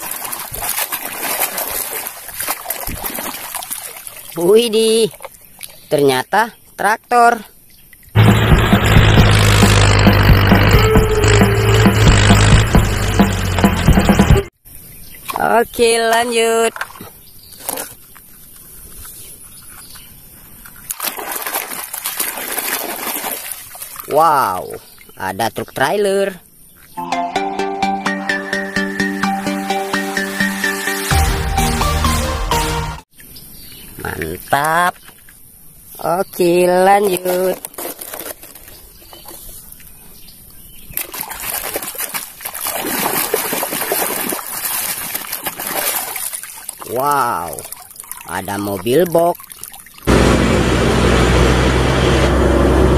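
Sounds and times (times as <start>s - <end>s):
toy scrubbed in muddy water: 0.0s - 4.4s, 8.2s - 12.9s, 36.7s - 39.7s, 41.0s - 50.1s
water splashing and sloshing: 0.0s - 6.0s, 15.0s - 25.2s, 34.2s - 52.4s.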